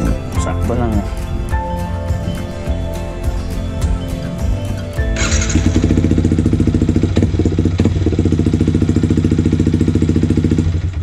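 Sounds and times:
motorcycle engine idling: 0:02.1 - 0:11.0.

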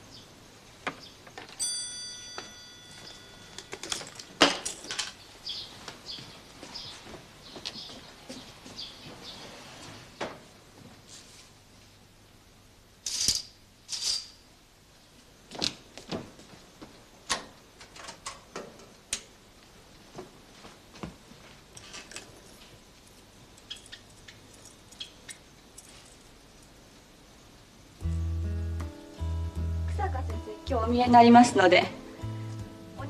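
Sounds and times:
objects clicking and rattling: 0:03.0 - 0:05.2, 0:13.0 - 0:14.4.

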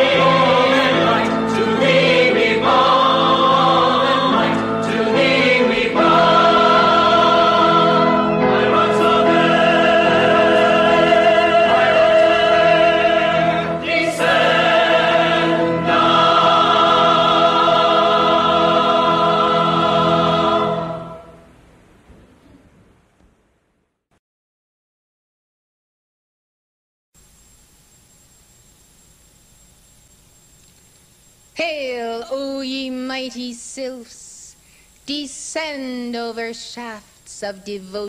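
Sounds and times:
choir singing held chords: 0:00.0 - 0:21.8.

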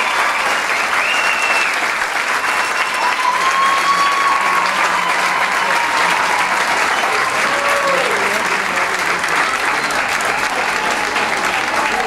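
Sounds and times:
audience applauding: 0:00.0 - 0:12.0
people cheering: 0:00.0 - 0:12.0.

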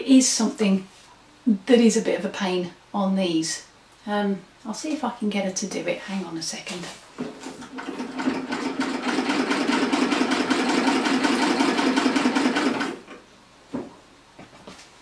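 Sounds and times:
treadle sewing machine clattering: 0:07.3 - 0:13.1.

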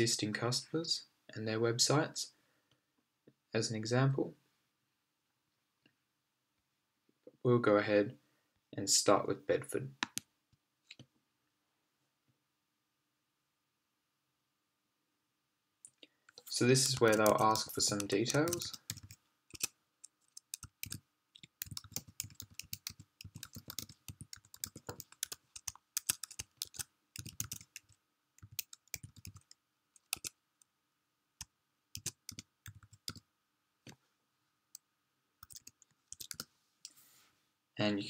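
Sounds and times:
computer keyboard typing: 0:16.3 - 0:30.4, 0:31.4 - 0:33.2, 0:35.4 - 0:36.5.

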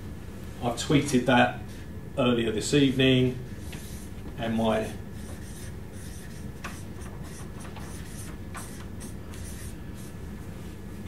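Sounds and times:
low room hum: 0:00.0 - 0:11.0
pen scratching on paper: 0:03.6 - 0:10.2.

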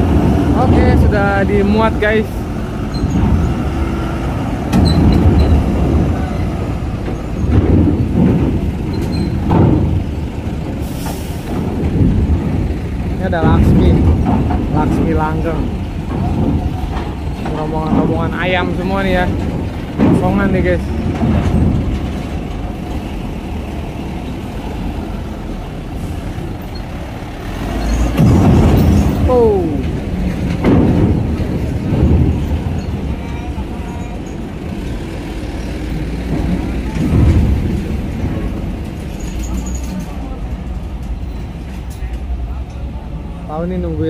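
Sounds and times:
truck engines rumbling: 0:00.0 - 0:44.0
tyres clattering over steel plates: 0:04.7 - 0:23.3, 0:27.8 - 0:34.8
sharp knocks: 0:07.0 - 0:10.7, 0:11.5 - 0:23.1, 0:28.0 - 0:33.2.

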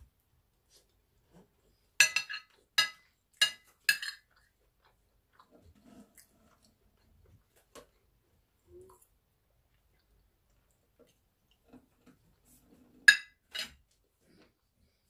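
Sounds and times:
soft chewing: 0:00.2 - 0:13.1, 0:13.9 - 0:15.0
metal spoon clinking on plate: 0:02.0 - 0:04.2.

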